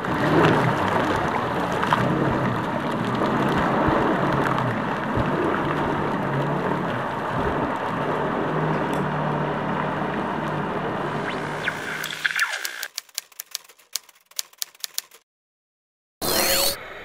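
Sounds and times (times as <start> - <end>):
jet ski engine humming: 0.0 - 12.0
water rushing and spraying: 0.0 - 12.1.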